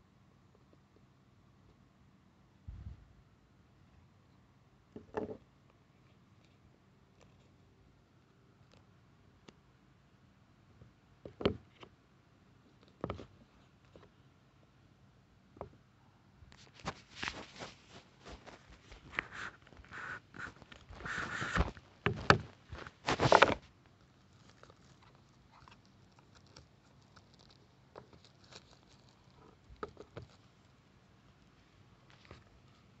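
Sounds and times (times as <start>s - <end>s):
cardboard box being opened: 20.4s - 23.6s.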